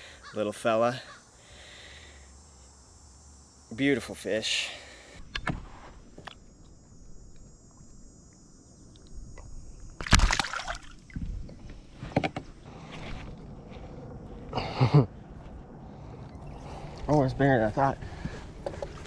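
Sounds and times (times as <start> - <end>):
fish splashing loudly: 10.0 - 11.1
soft splashes and knocks: 10.0 - 11.6.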